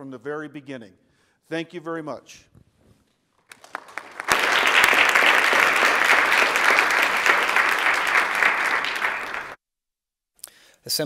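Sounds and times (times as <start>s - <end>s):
applause from many hands: 3.5s - 9.6s.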